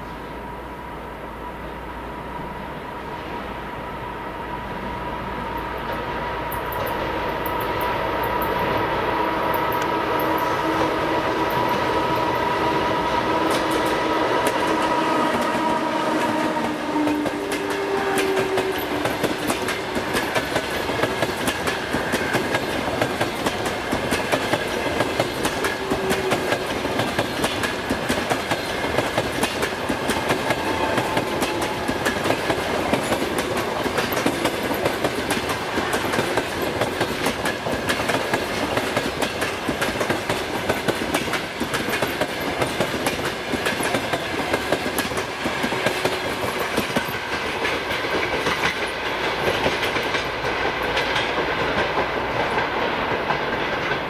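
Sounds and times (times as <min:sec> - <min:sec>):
electric locomotive whine: 0:00.0 - 0:54.0
train wheels clattering over joints: 0:13.5 - 0:54.0.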